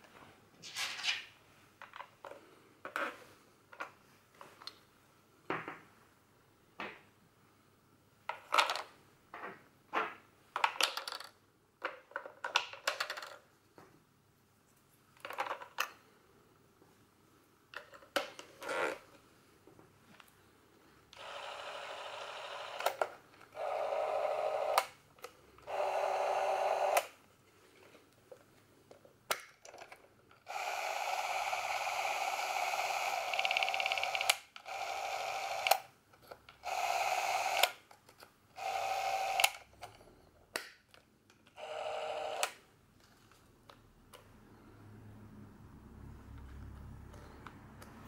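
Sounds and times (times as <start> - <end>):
film camera motor running: 21.2 - 22.9, 23.6 - 24.8, 25.7 - 27.1, 30.5 - 35.8, 36.6 - 37.7, 38.6 - 39.6, 41.6 - 42.5.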